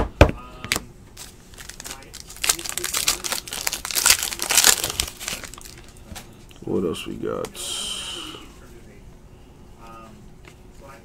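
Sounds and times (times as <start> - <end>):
wrapper crinkling: 1.2 - 6.0.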